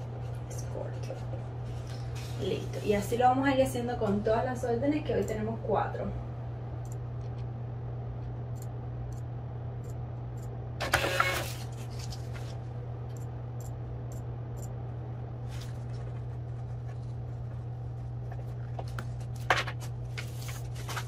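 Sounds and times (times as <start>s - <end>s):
steady low hum: 0.0s - 21.0s
paper labels being handled: 11.0s - 12.6s, 15.4s - 21.0s.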